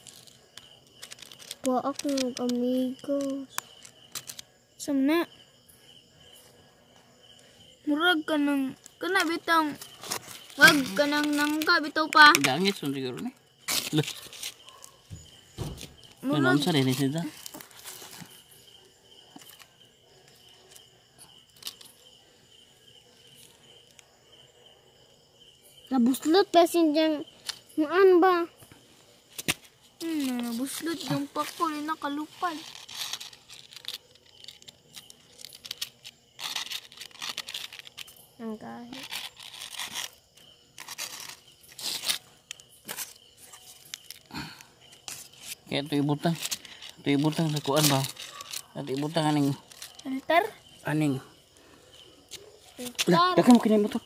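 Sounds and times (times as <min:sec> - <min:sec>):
high-pitched insect trill: 0:00.0 - 0:54.0
dry leaves rustling and crunching: 0:40.8 - 0:50.3.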